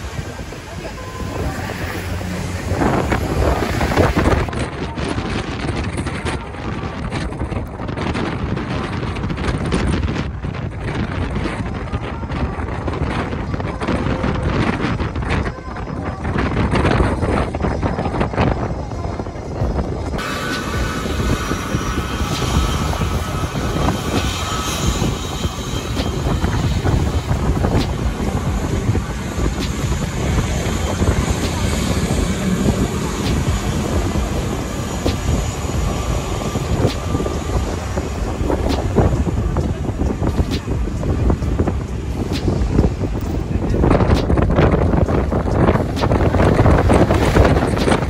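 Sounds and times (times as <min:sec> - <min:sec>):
airplane engines rumbling: 0:00.0 - 0:48.0
wind buffeting microphone: 0:00.0 - 0:48.0.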